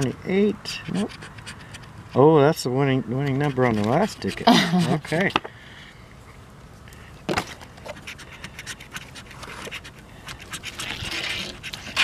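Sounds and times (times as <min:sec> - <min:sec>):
coin scratching lottery ticket: 0:00.7 - 0:02.4, 0:03.1 - 0:05.3, 0:07.9 - 0:12.0.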